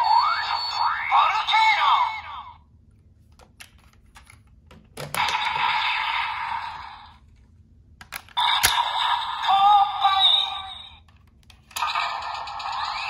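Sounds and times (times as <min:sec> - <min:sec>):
electronic toy sound effects: 0:00.0 - 0:02.5, 0:08.4 - 0:11.0, 0:11.7 - 0:13.0
electronic toy voice: 0:00.0 - 0:02.6, 0:08.4 - 0:11.0.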